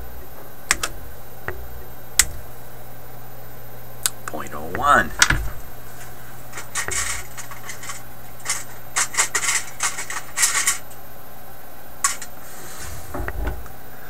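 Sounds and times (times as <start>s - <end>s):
steady low hum: 0.0s - 14.0s
tools clinking and scraping: 5.5s - 11.0s, 12.0s - 13.4s.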